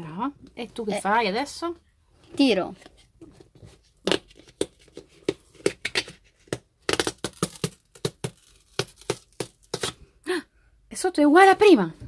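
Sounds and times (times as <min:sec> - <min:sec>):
cardboard tearing and crackling: 0:06.8 - 0:10.0.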